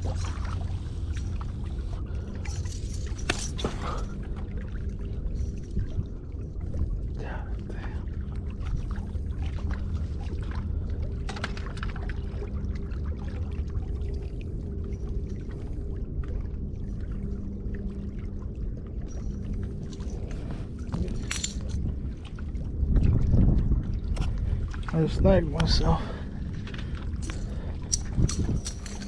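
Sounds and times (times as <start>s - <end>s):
water lapping against rocks: 0.0s - 15.9s, 19.0s - 29.0s
faint hum: 0.0s - 29.0s
low rumble: 0.0s - 29.0s.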